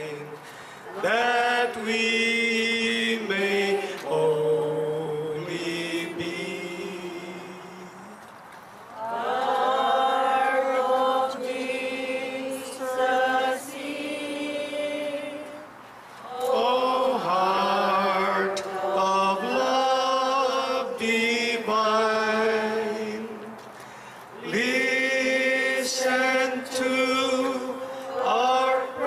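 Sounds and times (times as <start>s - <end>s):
voices singing a chant: 0.0s - 8.2s, 8.9s - 23.6s, 24.3s - 29.0s.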